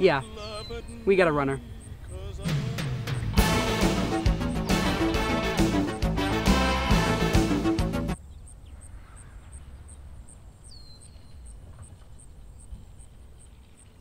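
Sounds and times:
insect chirping: 0:00.0 - 0:03.4, 0:08.2 - 0:14.0.

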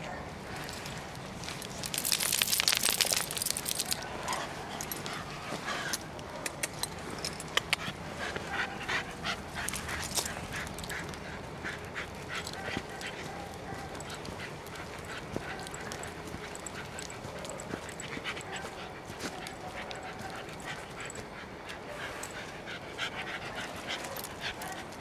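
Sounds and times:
small dog noises: 0:00.0 - 0:25.0
steps crunching on dry leaves: 0:00.5 - 0:04.2.

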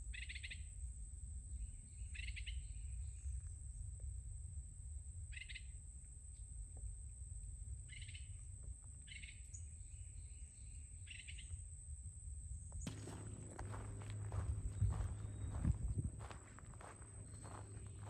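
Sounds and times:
high-pitched hum: 0:12.9 - 0:18.0
low rumble: 0:12.9 - 0:18.0
songbird chirping: 0:12.9 - 0:18.0.

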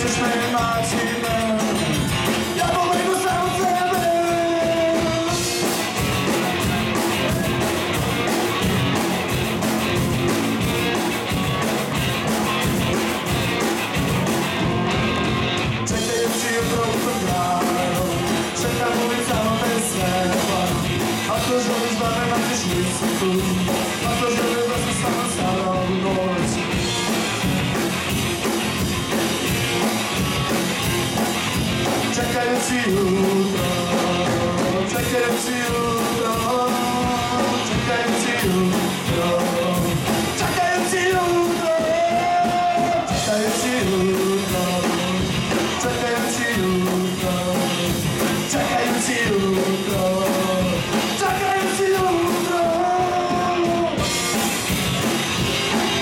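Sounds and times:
lead vocalist singing: 0:00.0 - 0:07.7, 0:15.8 - 0:26.8, 0:31.8 - 0:54.5
live rock band playing: 0:00.0 - 0:56.0.

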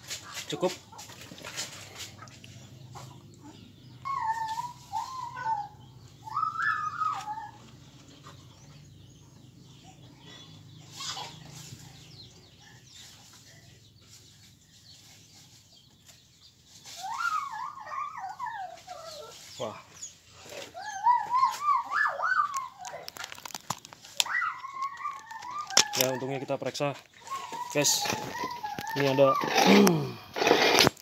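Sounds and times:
dog whining: 0:03.4 - 0:07.8, 0:17.0 - 0:19.7, 0:20.5 - 0:23.1, 0:24.2 - 0:26.4, 0:27.2 - 0:30.6.

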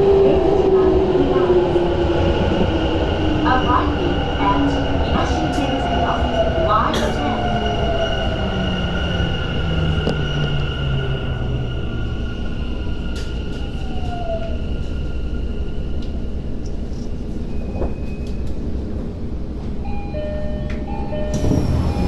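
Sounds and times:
train wheels rumbling on rails: 0:00.0 - 0:19.9, 0:20.6 - 0:22.0
traction inverter whine: 0:04.1 - 0:18.6.

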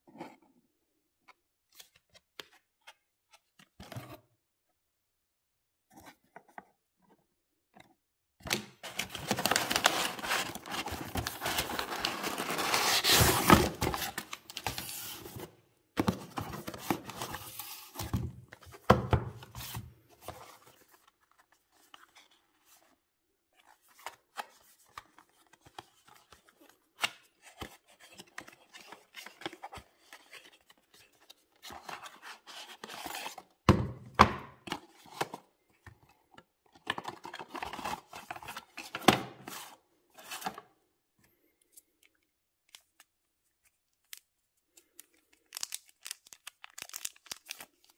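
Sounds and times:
packing paper and cardboard rustling: 0:08.8 - 0:18.8.

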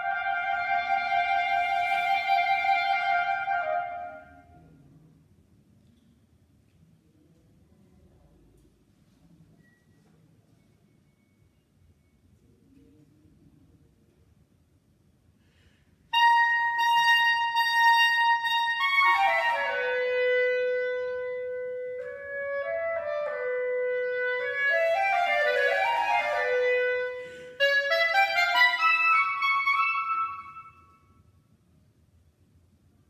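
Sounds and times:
solo clarinet playing: 0:00.0 - 0:04.5, 0:16.1 - 0:31.0.

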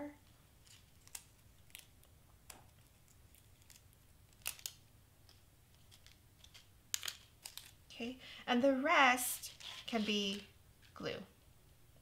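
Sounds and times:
clicks and crinkles of cardstock: 0:00.6 - 0:07.8.

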